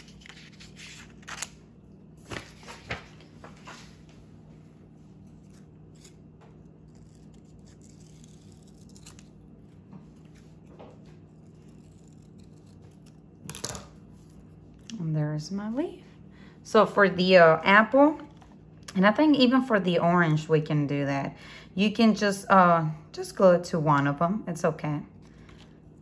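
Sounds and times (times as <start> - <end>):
scissors snipping paper: 5.3 - 9.4, 11.2 - 15.0.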